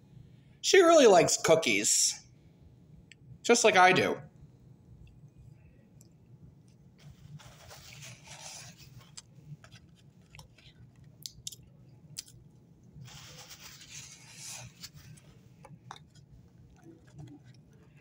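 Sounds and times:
faint chewing: 5.0s - 18.0s.

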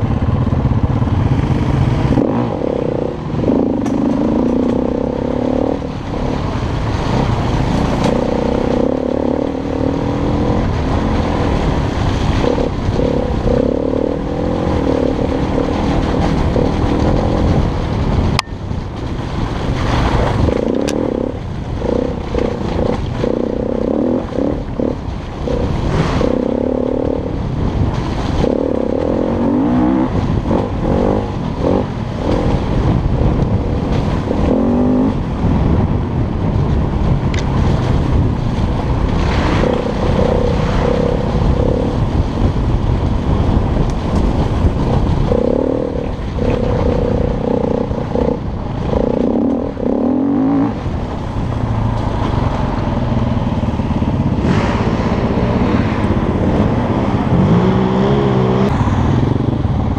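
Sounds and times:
constant rushing noise: 0.0s - 59.9s
motorcycle engine revving: 0.0s - 59.9s.

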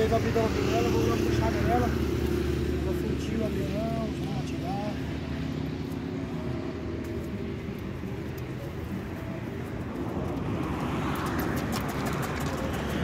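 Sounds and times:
hoofbeats on packed dirt: 9.9s - 13.0s.

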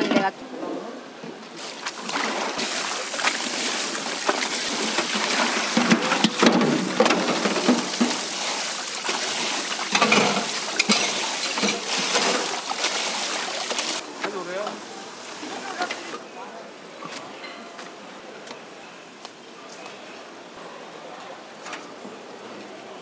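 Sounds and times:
hands rinsing noodles splashing: 1.6s - 14.0s
water spraying from faucet: 1.6s - 14.0s.

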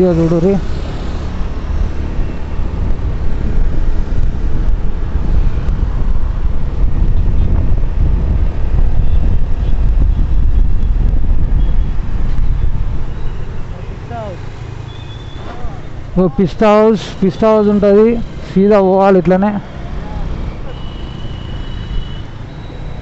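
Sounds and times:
low rumble of road traffic: 0.0s - 23.0s
wind buffeting microphone: 1.0s - 16.4s.

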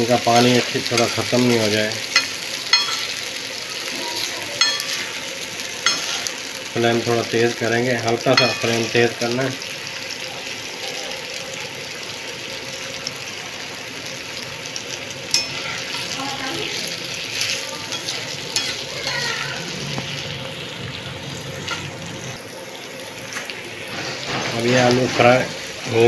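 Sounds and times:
potatoes sizzling in oil: 0.0s - 26.0s
metal spatula scraping a pan: 0.3s - 3.3s, 4.6s - 6.4s, 8.1s - 9.3s, 15.3s - 19.4s, 21.6s - 22.0s, 23.8s - 25.6s.

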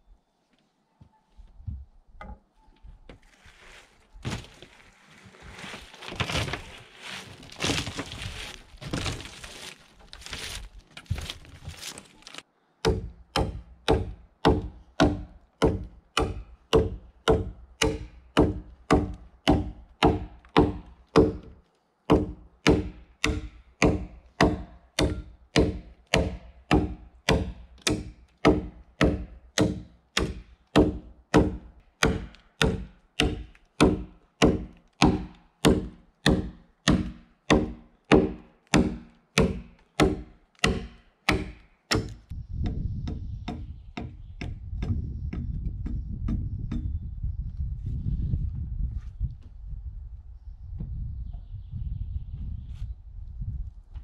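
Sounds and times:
wood chips cracking off: 3.6s - 12.4s
axe chopping log: 12.9s - 21.5s, 22.1s - 42.3s.

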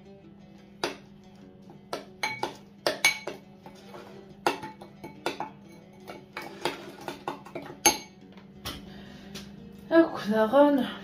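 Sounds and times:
kitchen utensils and dishes clinking: 1.9s - 8.8s.

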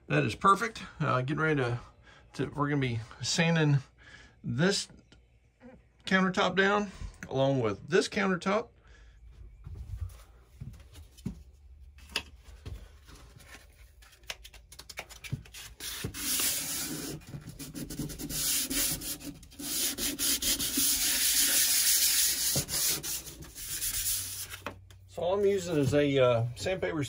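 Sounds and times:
hand sanding countertop: 15.8s - 24.6s.

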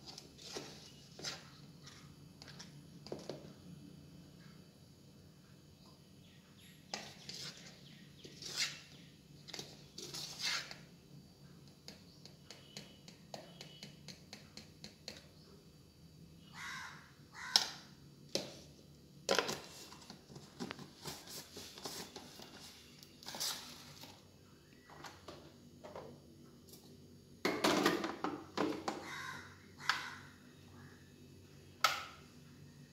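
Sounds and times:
metal spoon scraping inside a jar: 7.1s - 10.8s.

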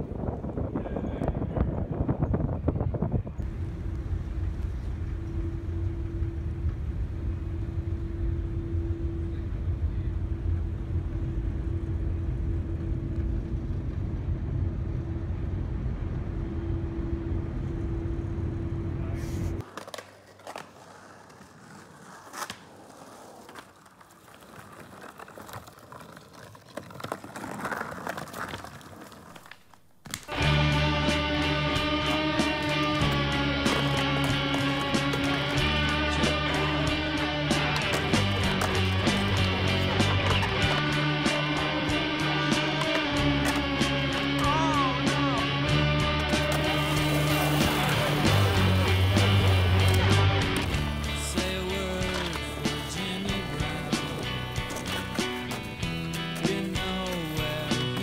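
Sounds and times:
ship engines rumbling: 30.3s - 58.0s.

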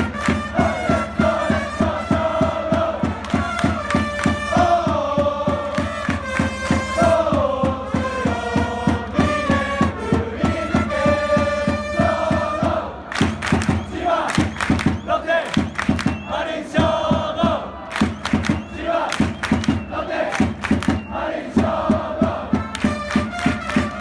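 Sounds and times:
trumpets playing melody: 0.0s - 2.4s, 22.4s - 24.0s
crowd chanting: 0.0s - 22.9s
steady drum beat: 0.0s - 24.0s
crowd shouting: 15.1s - 22.6s.

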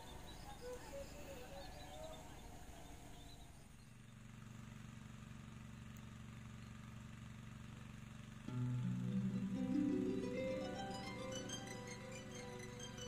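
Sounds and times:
plucked-string background music: 8.5s - 13.0s
steady low hum: 8.5s - 13.0s.

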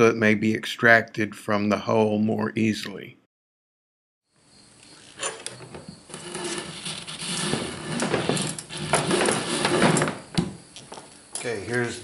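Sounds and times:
cable rubbing and scraping: 5.1s - 10.4s.

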